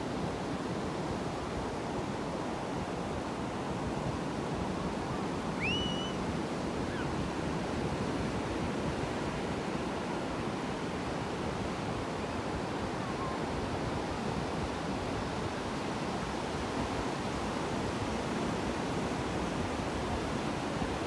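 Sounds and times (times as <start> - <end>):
high-pitched call: 5.6 - 6.2.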